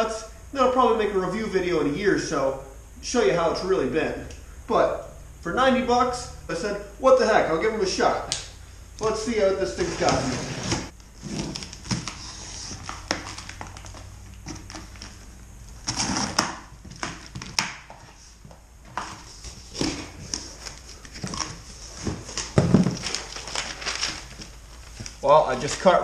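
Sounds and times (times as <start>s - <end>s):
cardboard thump: 22.1s - 23.1s.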